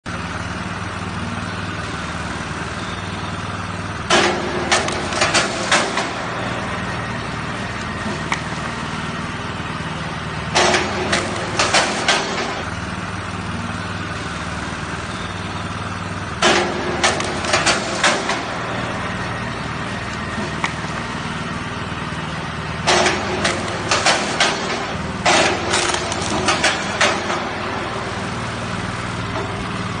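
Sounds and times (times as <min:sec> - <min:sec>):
small gasoline engine running: 0:00.1 - 0:30.0
log splitting cracks and clunks: 0:22.9 - 0:27.3.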